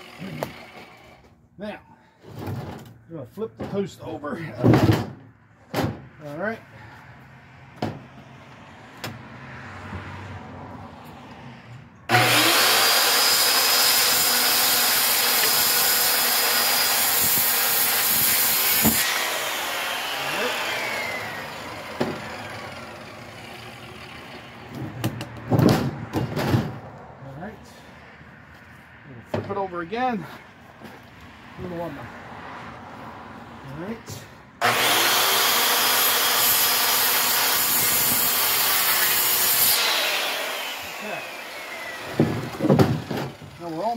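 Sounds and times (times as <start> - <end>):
circular saw cutting wood: 0.0 - 1.3, 12.1 - 24.6, 33.7 - 43.9.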